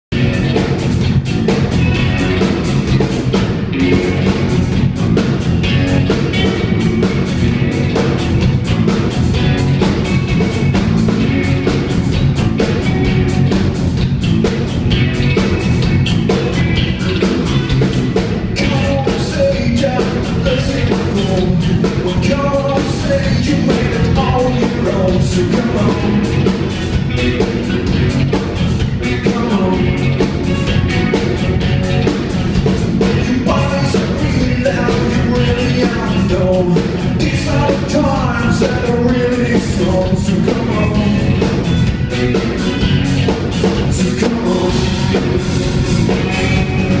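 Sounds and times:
drum kit beat: 0.1s - 47.0s
rock band playing live: 0.1s - 47.0s.

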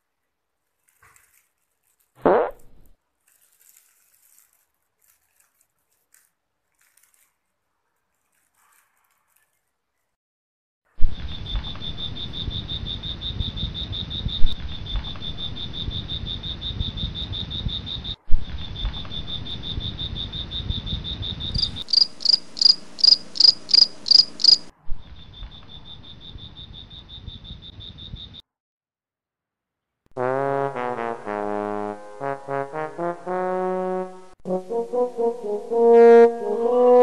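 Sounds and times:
slower pulsing insect call: 11.0s - 28.4s
crickets chirping: 11.1s - 28.4s.

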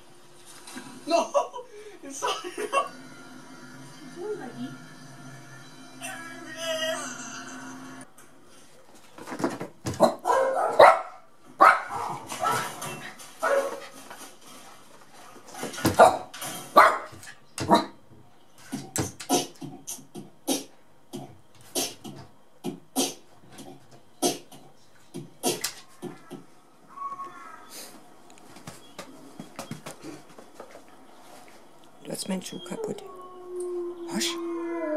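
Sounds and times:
small dog barking: 10.0s - 12.7s, 16.8s - 17.1s.

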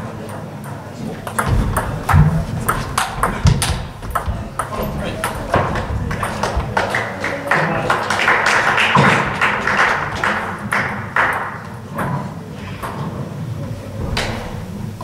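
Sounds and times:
busy hall noise: 0.0s - 15.0s
table tennis balls clicking: 0.2s - 7.4s.

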